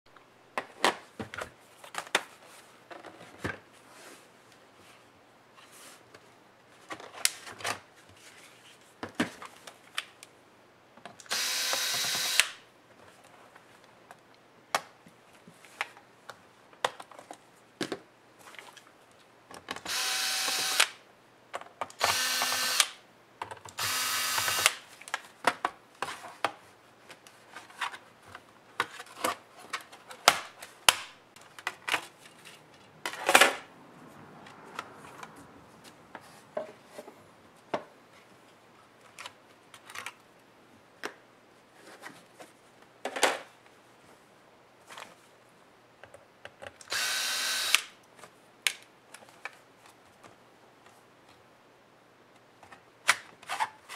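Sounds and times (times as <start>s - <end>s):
cordless drill bursts: 11.3s - 12.6s, 19.9s - 21.0s, 22.0s - 23.0s, 23.8s - 24.8s, 46.9s - 47.9s.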